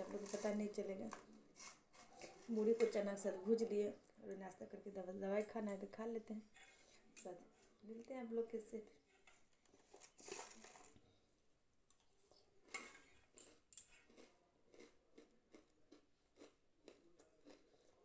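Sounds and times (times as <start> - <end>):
chewing crunchy puffed rice: 9.7 - 11.0, 12.3 - 18.0.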